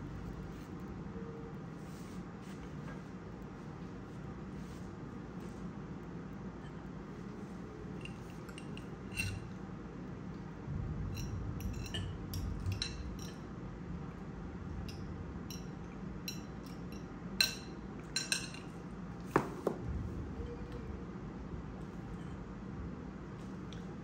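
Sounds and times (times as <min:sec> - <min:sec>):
fork clinking on ceramic plates: 0:08.0 - 0:09.5, 0:14.9 - 0:18.8.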